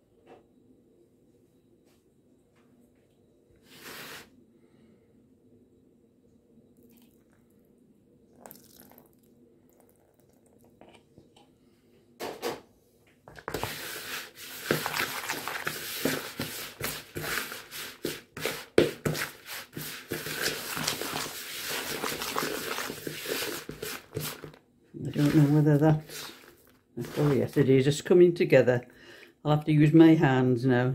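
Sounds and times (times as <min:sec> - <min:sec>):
spoon scraping dough in bowl: 0:13.5 - 0:27.6.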